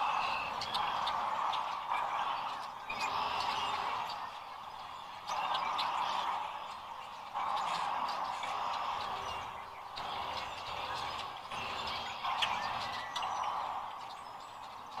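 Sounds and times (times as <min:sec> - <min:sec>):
chorus of cranes calling: 0:00.0 - 0:15.0.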